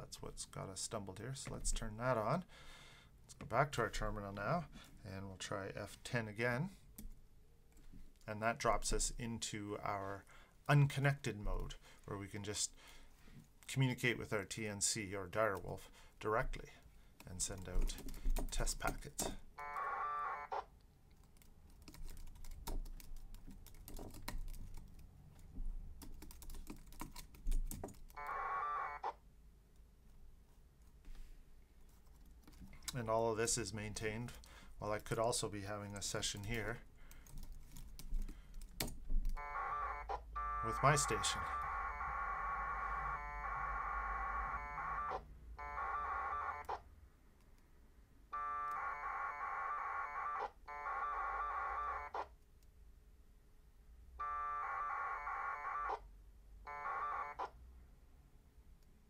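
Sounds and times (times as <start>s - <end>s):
computer keyboard typing: 21.2s - 25.1s, 26.0s - 28.3s, 36.4s - 39.4s
radio data transmission buzz: 39.4s - 46.8s.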